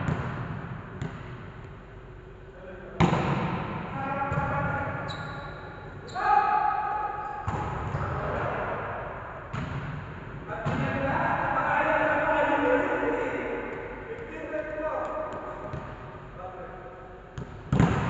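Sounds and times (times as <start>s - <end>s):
volleyball slaps echoing: 0.0s - 1.7s, 3.0s - 4.8s, 6.5s - 11.1s, 15.0s - 16.1s, 17.4s - 18.0s.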